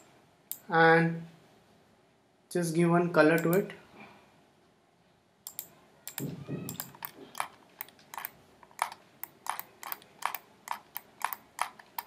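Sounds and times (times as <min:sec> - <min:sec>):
keyboard and mouse clicking: 0:05.5 - 0:12.0.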